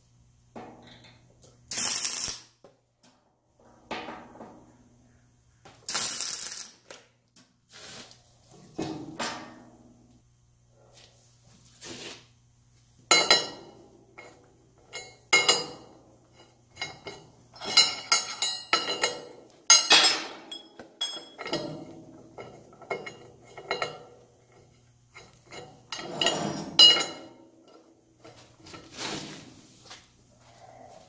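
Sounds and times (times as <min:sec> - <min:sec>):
metal bolts clinking on steel plate: 0:16.8 - 0:27.9.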